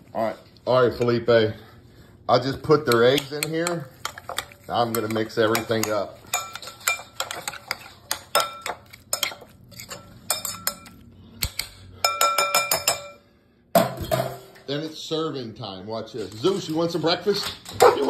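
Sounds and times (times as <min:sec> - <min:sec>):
metal spoon clinking glass bowl: 0:02.9 - 0:13.2.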